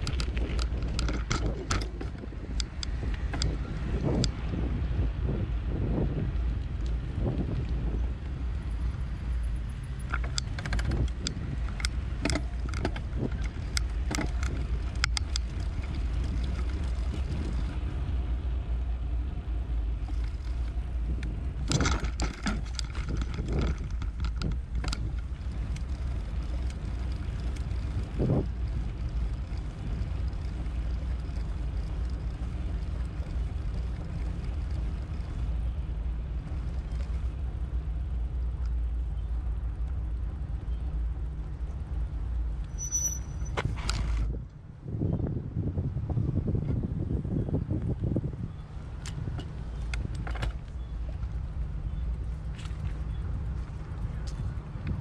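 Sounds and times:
bicycle rattling clicks: 0.0s - 4.4s, 9.2s - 18.1s, 19.9s - 40.2s, 42.5s - 44.6s, 47.8s - 55.0s
bicycle wind and rolling rumble: 0.0s - 55.0s.

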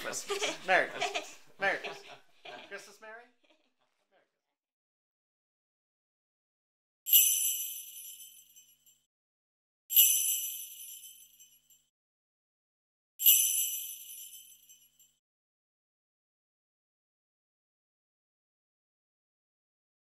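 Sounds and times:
jingle bells shaken: 7.1s - 9.0s, 9.9s - 11.8s, 13.2s - 15.2s.

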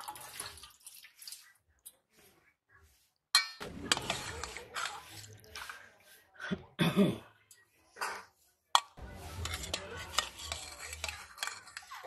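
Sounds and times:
clattering dishes: 3.4s - 5.8s, 8.0s - 12.0s
spoon scraping steel bowls: 3.4s - 6.3s, 7.5s - 12.0s.

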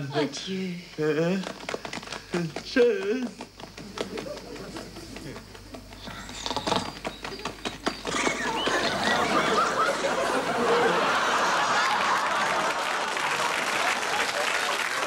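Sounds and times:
audience laughing: 4.0s - 5.2s, 8.1s - 15.0s
audience clapping: 8.5s - 15.0s.

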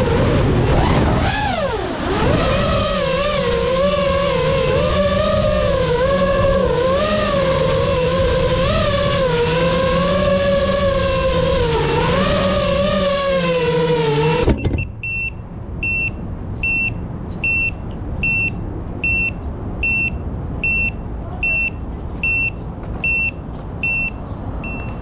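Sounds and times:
drone propellers whining: 0.0s - 25.0s
short high buzzer beeps: 14.6s - 25.0s.

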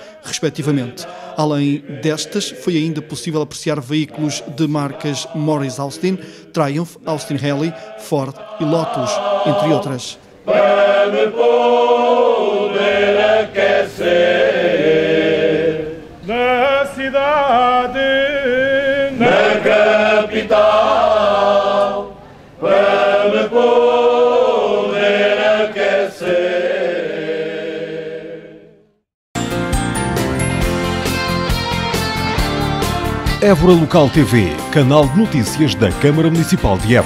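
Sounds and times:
choir singing: 0.0s - 29.0s.

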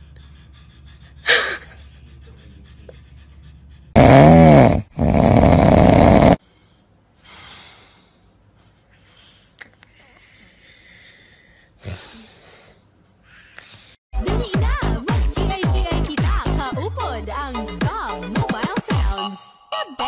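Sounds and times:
man snoring loudly: 4.0s - 6.4s
faint breath: 6.4s - 14.0s.

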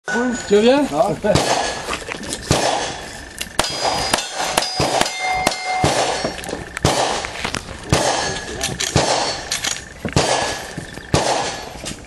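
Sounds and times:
steel plate ringing: 0.1s - 0.8s, 2.8s - 6.7s, 8.0s - 11.8s
revolver shots: 1.3s - 9.5s, 10.1s - 11.7s.

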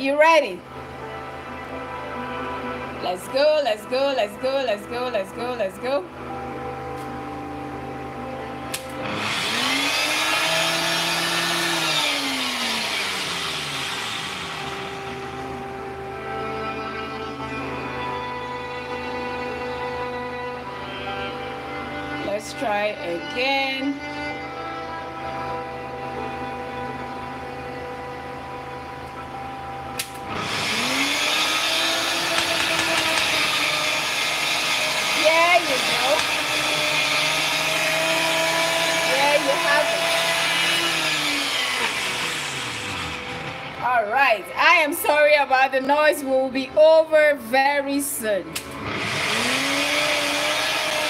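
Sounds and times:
blender motor running: 9.0s - 15.7s, 30.2s - 43.8s, 48.6s - 51.0s
single click: 30.0s - 30.2s.

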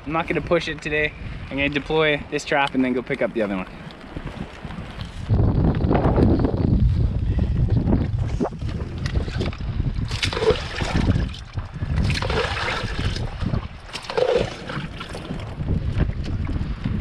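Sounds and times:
wind buffeting microphone: 0.0s - 17.0s
oars splashing in water: 9.2s - 15.6s.

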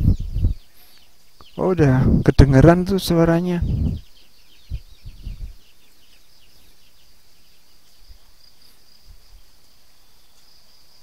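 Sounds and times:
insect chirps: 3.2s - 11.0s.

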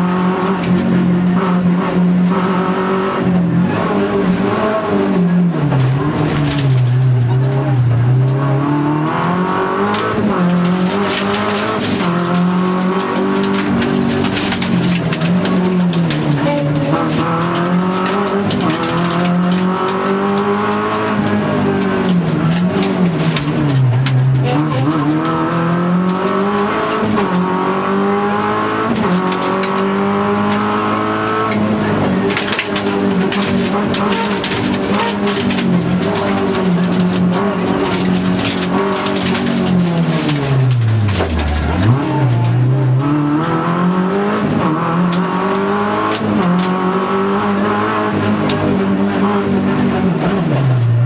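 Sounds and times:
car engine revving: 0.0s - 51.0s
car clicks and knocks: 9.2s - 50.9s.

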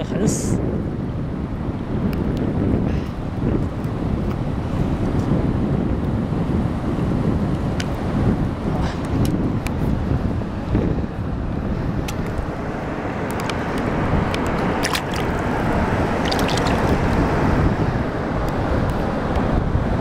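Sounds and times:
wind buffeting microphone: 0.0s - 20.0s
small waves lapping on rocks: 14.8s - 17.0s.

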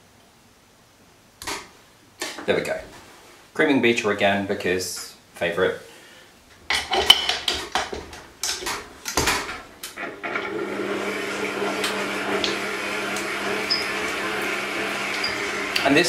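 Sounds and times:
stand mixer motor running: 10.1s - 16.0s.

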